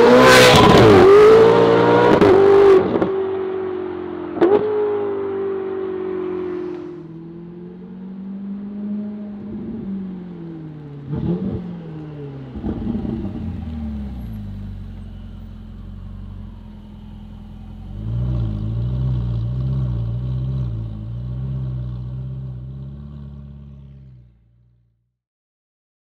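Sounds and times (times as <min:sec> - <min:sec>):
sports car engine slowing: 0:03.7 - 0:24.8
engine low burble: 0:05.3 - 0:25.0.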